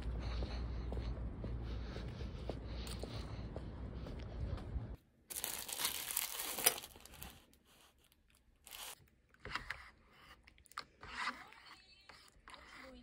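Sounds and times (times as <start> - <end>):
plastic packet tearing and crinkling: 5.3 - 7.6, 8.6 - 9.0
spoon scraping in plastic cup: 8.8 - 13.0.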